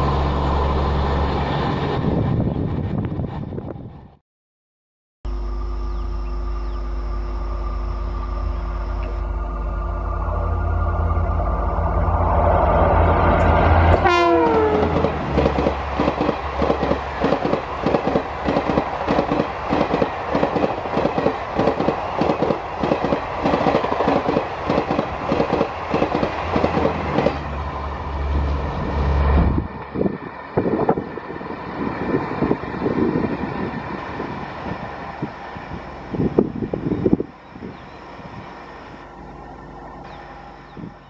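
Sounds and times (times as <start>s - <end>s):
falling-pitch locomotive tone: 5.3s - 17.5s, 25.1s - 41.0s
train wheels clattering on rail joints: 14.8s - 27.4s.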